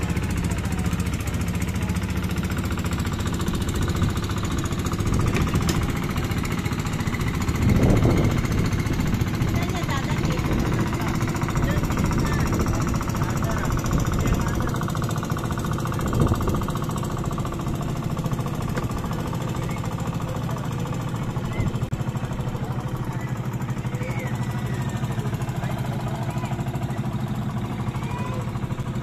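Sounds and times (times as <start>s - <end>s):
boat engine pulsing: 0.0s - 29.0s.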